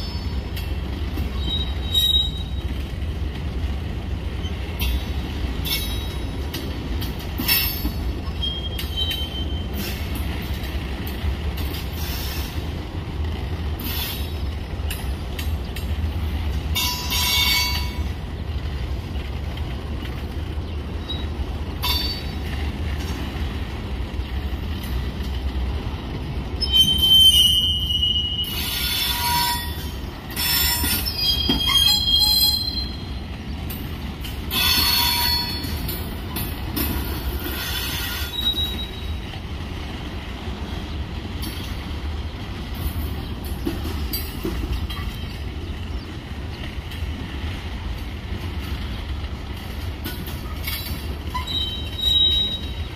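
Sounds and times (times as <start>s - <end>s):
train wheels squealing: 0.0s - 0.6s, 1.2s - 2.9s, 4.4s - 6.4s, 7.4s - 10.6s, 11.6s - 12.7s, 13.8s - 15.2s, 16.7s - 18.1s, 20.9s - 22.6s, 26.5s - 39.3s, 50.0s - 52.9s
freight train rolling past: 0.0s - 52.9s.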